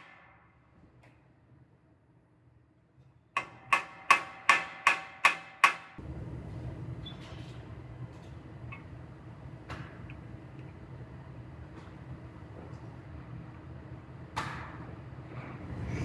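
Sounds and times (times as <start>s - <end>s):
hammer striking steel: 0.0s - 0.7s, 3.4s - 6.0s
steady low hum: 6.0s - 16.0s.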